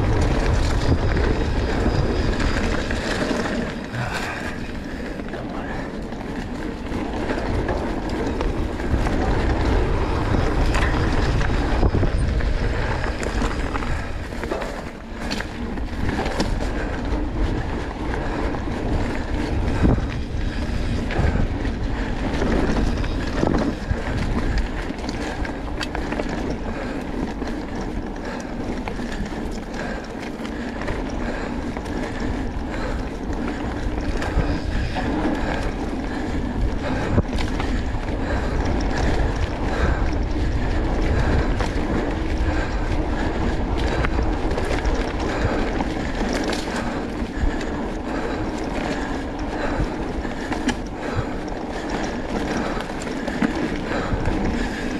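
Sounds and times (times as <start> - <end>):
wind rumbling on microphone: 0.0 - 54.9.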